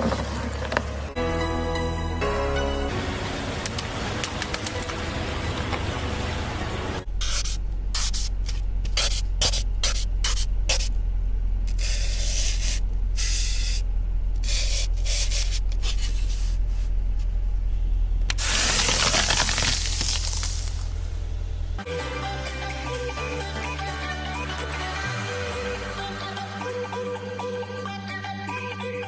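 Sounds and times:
steady low hum: 1.9 - 19.5, 20.2 - 21.9
crunchy hissing foam scrapes: 11.7 - 13.8, 14.4 - 16.9, 18.4 - 20.8.

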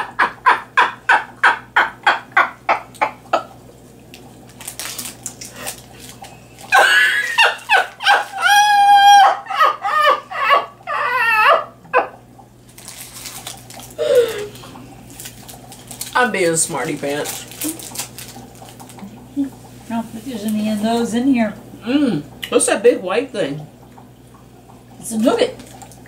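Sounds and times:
hearty laughter: 6.7 - 8.5.

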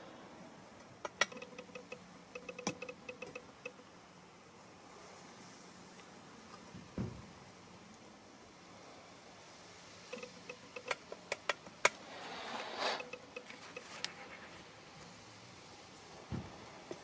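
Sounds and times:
light metallic clinks: 1.0 - 3.9, 10.1 - 11.7, 13.0 - 14.2.

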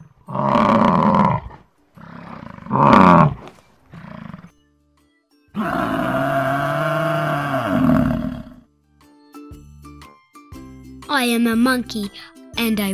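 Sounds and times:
buffalo bellowing: 0.2 - 4.6, 5.6 - 8.7.

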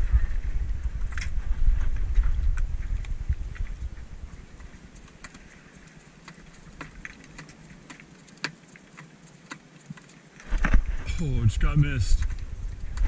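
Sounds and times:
loud low rumble: 0.0 - 4.3
light clicks and ticks: 2.2 - 10.8, 11.6 - 13.0.

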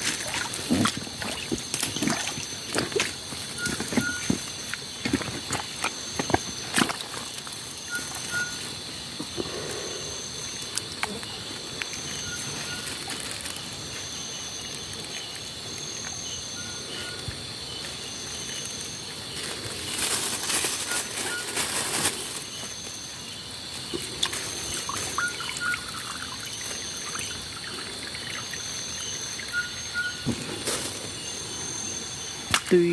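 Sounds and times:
net splashing in water: 0.0 - 3.9
stream water trickling: 0.0 - 8.8, 23.8 - 30.3
night insects chorus: 0.0 - 32.9.

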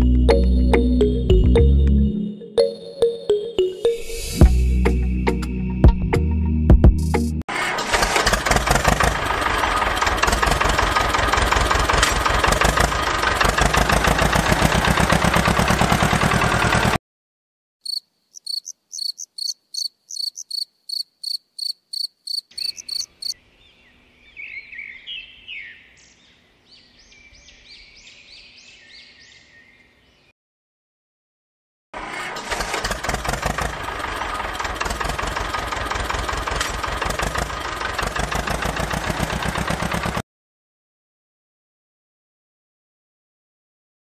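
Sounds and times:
tractor engine running: 7.5 - 17.0, 32.0 - 40.2
faint high chirping: 17.8 - 23.4.

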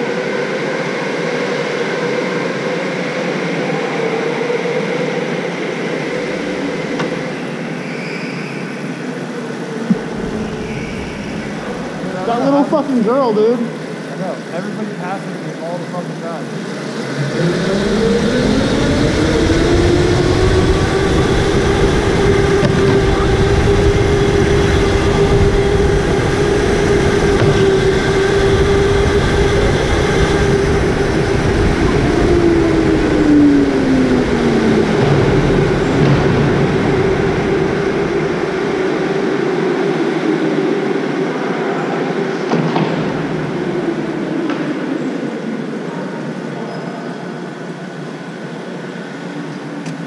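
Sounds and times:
low road rumble: 0.0 - 50.0
second kart whine dropping: 9.7 - 12.6, 17.0 - 39.9
electric go-kart motor whining: 16.6 - 46.4.

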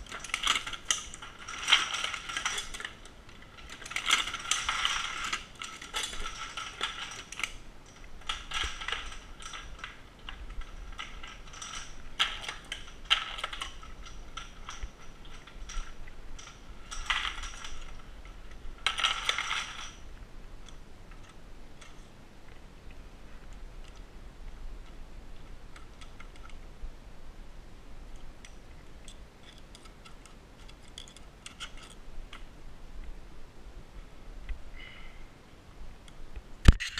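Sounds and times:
reloading press metallic clattering: 0.0 - 20.0.

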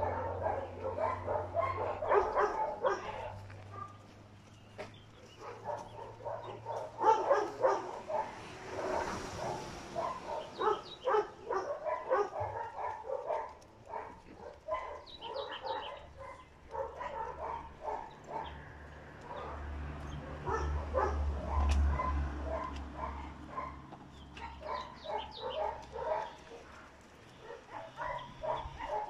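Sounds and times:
dogs barking: 0.0 - 29.0.

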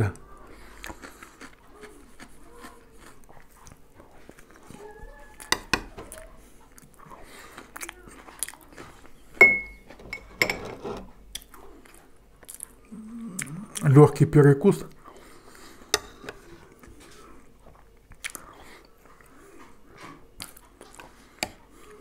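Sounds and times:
chewing and mouth clicks: 0.2 - 9.2, 11.3 - 13.9, 14.9 - 22.0
metal spoon clinking: 9.4 - 10.9.

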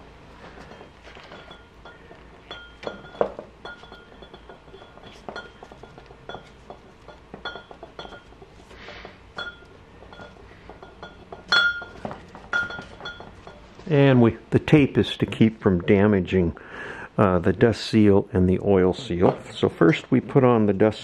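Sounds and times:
metal tube clinks and ringing: 0.4 - 13.8.

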